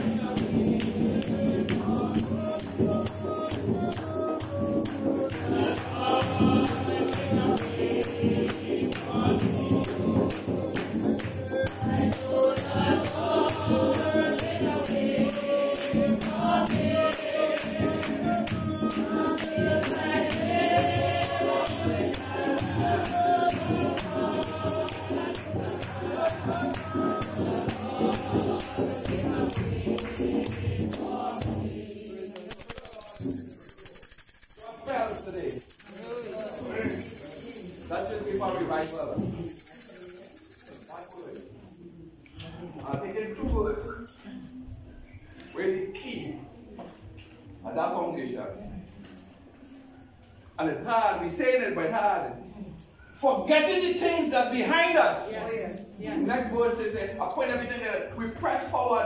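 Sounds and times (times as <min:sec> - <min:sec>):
congregation singing a hymn: 0:00.0 - 0:40.9
tambourine beat: 0:00.0 - 0:42.3.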